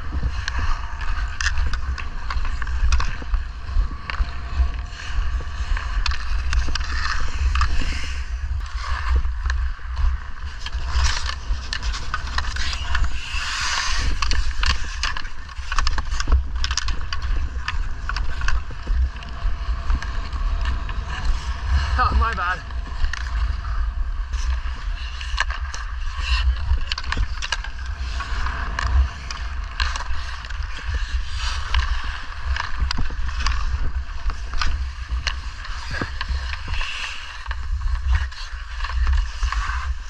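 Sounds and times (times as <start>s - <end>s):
skate blades scraping ice: 0.0s - 40.0s
wind rumble on microphone: 0.0s - 40.0s
hockey sticks hitting puck: 25.3s - 33.8s.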